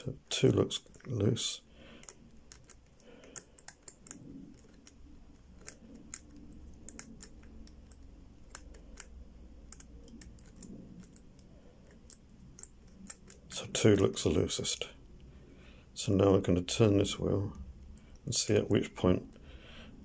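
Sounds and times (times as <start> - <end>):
padlock wheel clicking: 1.9 - 14.2.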